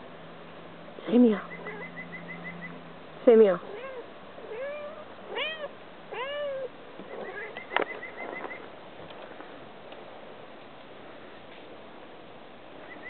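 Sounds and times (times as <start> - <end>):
cat meowing: 3.7 - 7.6.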